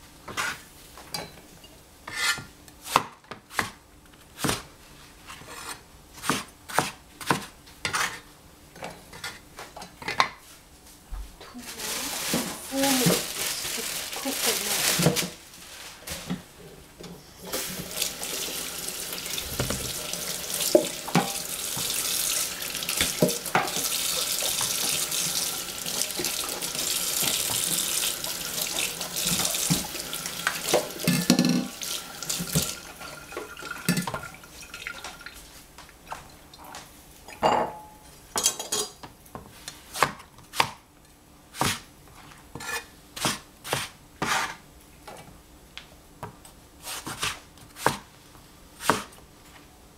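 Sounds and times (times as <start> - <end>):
tap running into sink: 19.2 - 22.0, 28.6 - 32.8
knocks in sink: 19.5 - 20.0
cleaver chopping on cutting board: 47.1 - 48.0, 48.8 - 49.1.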